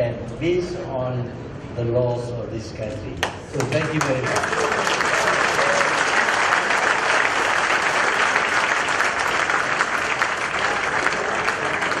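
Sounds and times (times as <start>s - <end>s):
people clapping: 3.2s - 12.0s.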